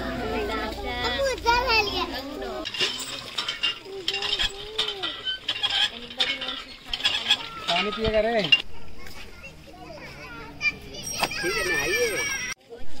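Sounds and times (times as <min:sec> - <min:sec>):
faint children's voices: 0:00.0 - 0:13.0.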